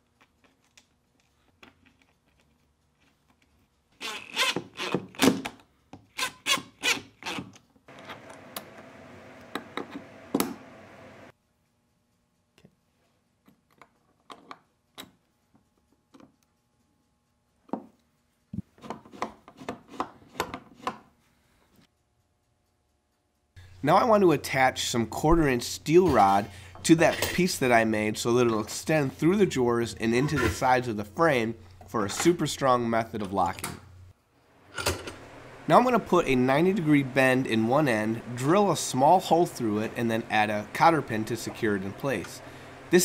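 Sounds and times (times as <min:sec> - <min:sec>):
small power tool running: 0:35.0 - 0:43.0.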